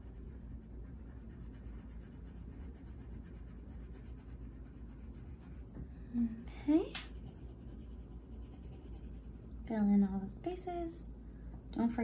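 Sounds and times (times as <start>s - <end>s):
crayon rubbing on paper: 0.0s - 5.7s, 7.1s - 9.5s.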